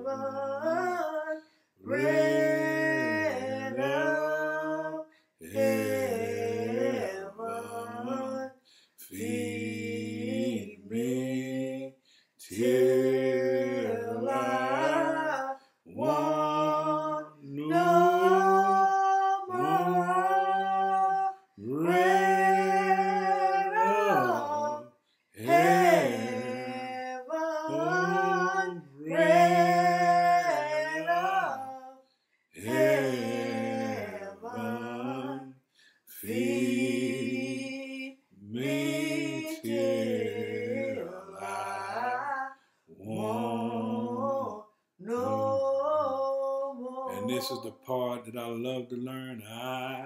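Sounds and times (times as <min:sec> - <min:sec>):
man singing unaccompanied: 0:00.0 - 0:32.0, 0:32.6 - 0:50.0
singer breathing: 0:05.1 - 0:05.4, 0:08.6 - 0:09.0, 0:12.0 - 0:12.4, 0:35.7 - 0:36.1.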